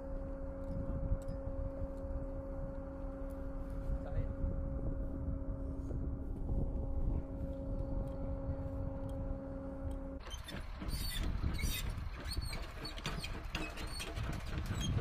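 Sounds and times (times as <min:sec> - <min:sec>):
droning hum with low rumble: 0:00.0 - 0:15.0
short high squeaks: 0:10.2 - 0:15.0.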